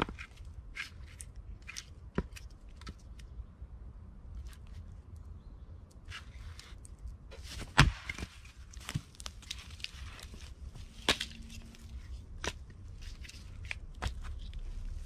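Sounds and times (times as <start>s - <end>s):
hatchet splitting a log: 7.7s - 8.2s.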